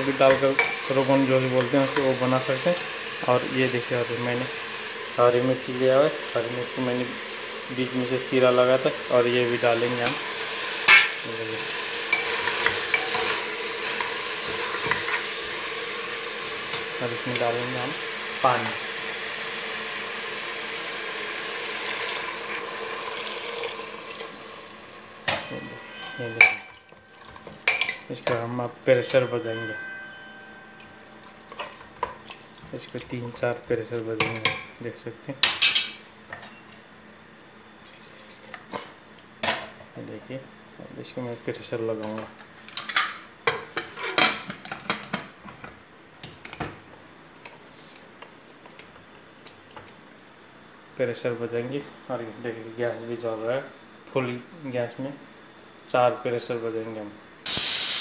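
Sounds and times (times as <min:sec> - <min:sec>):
water pouring into pot: 0:11.6 - 0:25.0, 0:30.8 - 0:33.3, 0:37.8 - 0:38.7.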